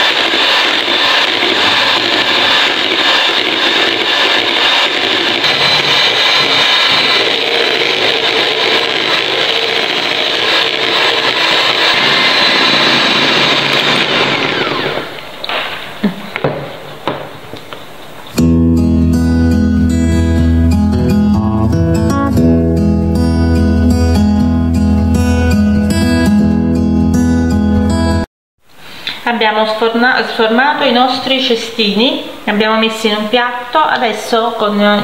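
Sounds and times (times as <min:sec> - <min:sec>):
electric hand mixer whirring: 0:00.0 - 0:17.0
acoustic guitar music: 0:18.2 - 0:28.2.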